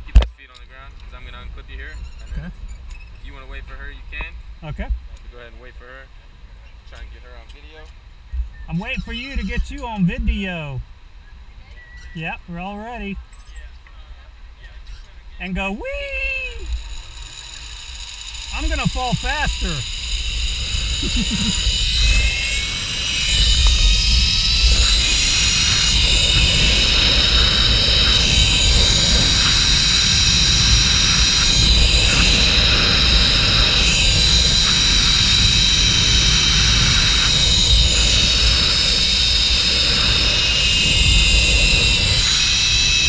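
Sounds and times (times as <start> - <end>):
wind rushing over microphone: 15.6 - 43.0
zip line trolley wheels whining: 15.7 - 43.0.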